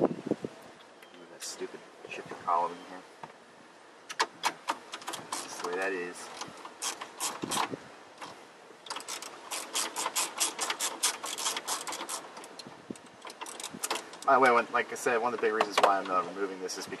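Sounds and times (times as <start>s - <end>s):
hand ratchet clicking: 6.8s - 7.7s, 8.9s - 14.3s.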